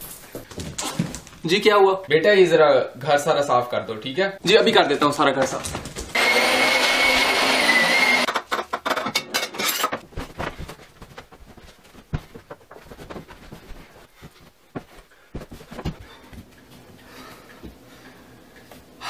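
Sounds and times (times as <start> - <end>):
knocks and clatter of tidying: 0.0 - 1.4, 5.3 - 6.2, 8.3 - 16.8
vacuum cleaner whine: 6.1 - 8.3.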